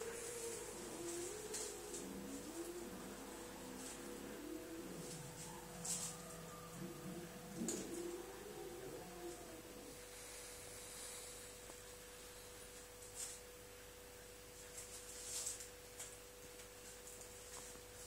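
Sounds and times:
steady faint tone: 0.0s - 18.0s
aluminium foil crinkling: 14.6s - 17.7s.

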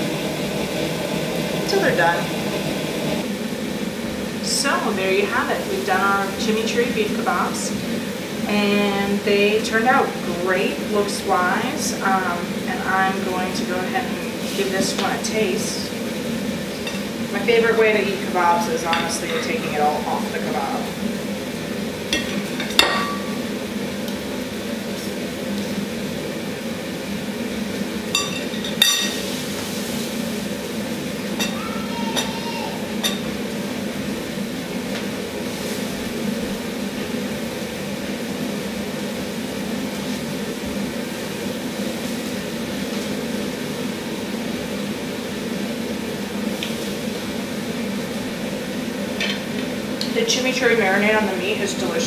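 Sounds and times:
steady low hum: 0.0s - 31.8s.

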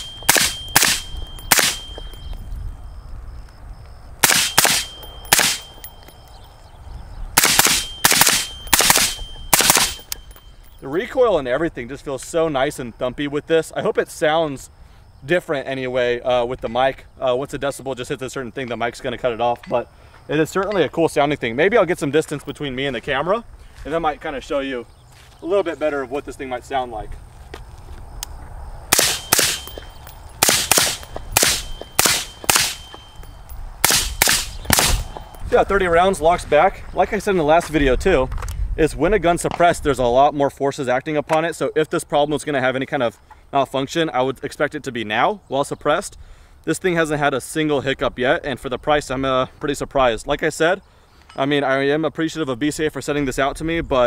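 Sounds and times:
suppressed rifle shots: 0.0s - 2.0s, 4.2s - 5.8s, 7.4s - 10.1s, 28.9s - 29.8s, 30.4s - 33.0s, 33.8s - 35.2s.

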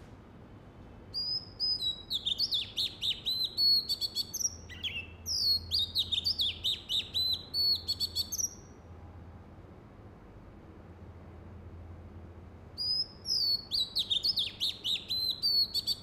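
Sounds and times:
bird singing whistled notes: 1.1s - 8.8s, 12.8s - 16.0s.

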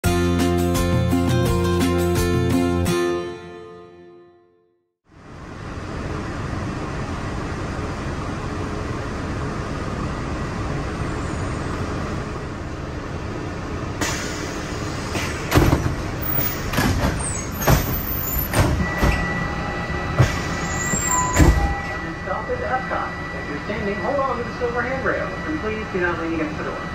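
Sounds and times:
monorail hum: 5.1s - 26.9s
sharp knocks and thumps: 15.2s - 16.1s, 16.7s - 19.3s
steady high tone: 18.6s - 26.9s.

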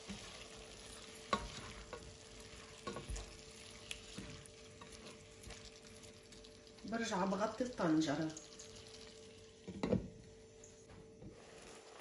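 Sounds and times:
chicken and onion sizzling in oil: 0.0s - 12.0s
spatula knocking and scraping pot: 1.2s - 2.1s, 2.7s - 3.4s.

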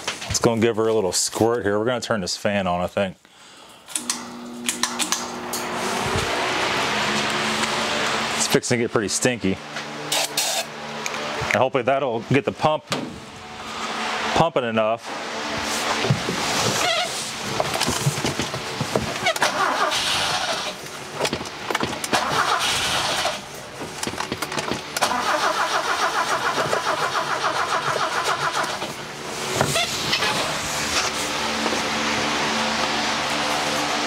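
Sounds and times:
engine running steadily: 4.0s - 34.0s
engine cranking on starter: 19.2s - 29.0s.

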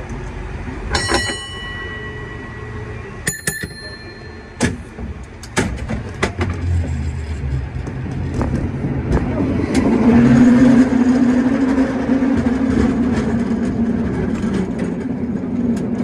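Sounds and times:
low rumble of moving car: 0.0s - 16.0s
cable car bell ringing: 0.8s - 5.0s
sharp metallic clanks: 0.9s - 5.8s.

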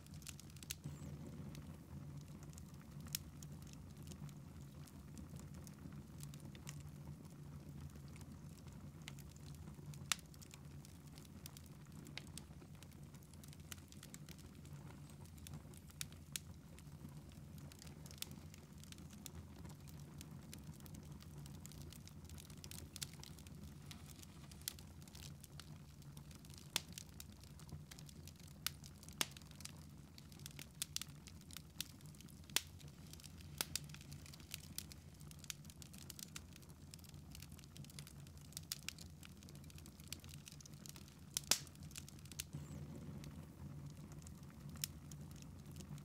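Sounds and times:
wood fire crackling: 0.0s - 46.0s.

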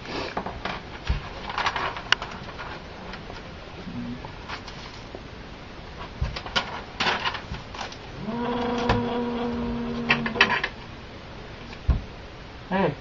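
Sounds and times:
paper rustling: 0.3s - 3.5s, 4.4s - 5.2s, 6.0s - 8.1s.

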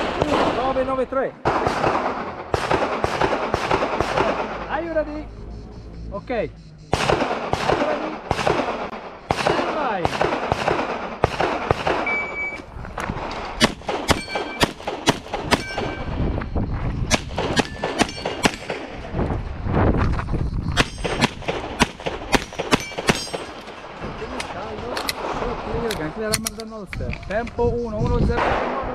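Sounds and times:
pistol shots: 0.0s - 4.8s, 6.9s - 12.4s, 13.2s - 16.2s, 17.1s - 19.0s, 20.8s - 26.6s, 28.3s - 28.9s
short high beep: 12.0s - 12.6s
metallic ring of steel targets: 14.1s - 14.7s, 15.5s - 16.2s, 17.6s - 18.7s, 20.8s - 21.3s, 22.4s - 23.7s.

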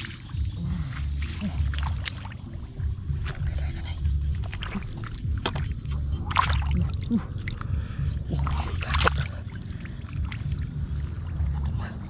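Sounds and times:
low rumble: 0.0s - 12.0s
muddy water splashing: 0.0s - 12.0s.

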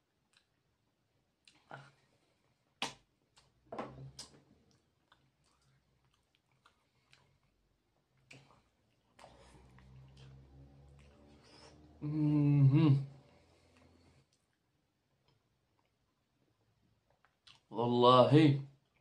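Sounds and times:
soft chewing: 0.0s - 12.0s, 13.1s - 17.7s, 18.8s - 19.0s
lip smacks and mouth clicks: 0.2s - 0.6s, 1.4s - 2.0s, 2.8s - 11.8s, 13.7s - 16.1s, 17.1s - 17.7s.

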